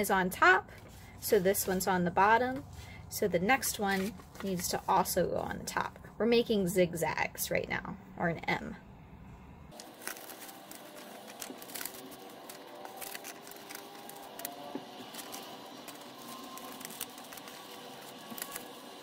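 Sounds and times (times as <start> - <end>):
paper rustling and crinkling: 3.6 - 5.1, 9.7 - 19.0.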